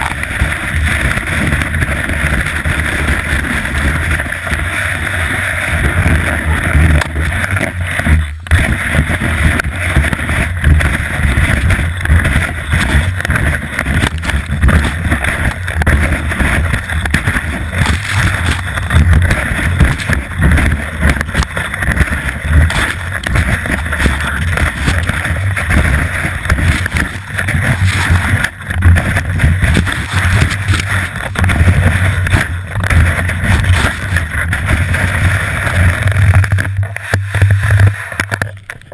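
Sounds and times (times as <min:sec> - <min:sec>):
low rumble: 0:00.0 - 0:38.9
skis scraping over snow: 0:00.0 - 0:38.9
wind buffeting microphone: 0:08.6 - 0:36.7.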